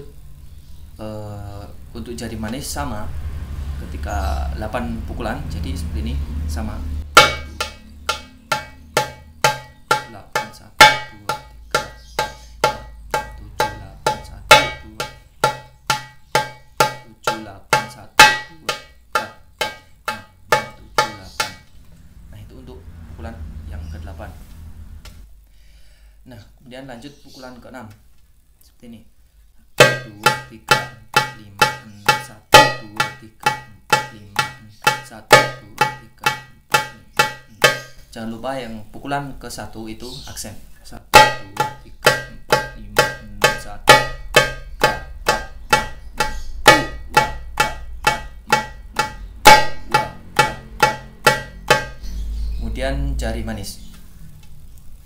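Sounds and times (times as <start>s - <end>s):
hand drum steady beat: 7.0s - 21.7s, 29.8s - 37.9s, 41.1s - 52.0s
darbuka finger strokes: 7.0s - 21.9s, 41.1s - 52.6s.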